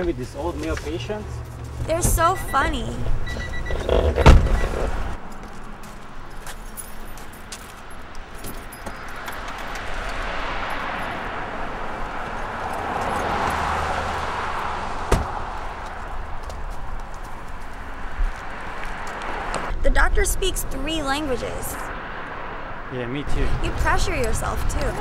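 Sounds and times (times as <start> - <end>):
car door shutting: 3.3 - 5.1, 15.1 - 15.4
car trunk opening: 3.3 - 5.1
trunk lid slamming: 3.9 - 4.9
keys jingling: 5.3 - 11.1.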